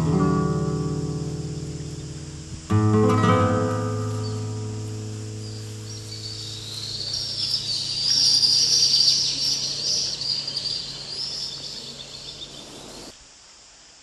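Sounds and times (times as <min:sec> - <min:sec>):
shrill insect buzzing chorus: 0:00.0 - 0:13.2.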